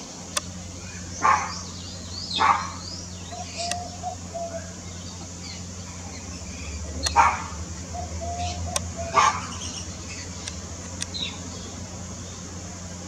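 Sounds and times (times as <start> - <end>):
low steady hum: 0.0 - 13.0
dog barking: 1.2 - 1.6, 2.4 - 2.8, 7.1 - 7.6, 9.1 - 9.5.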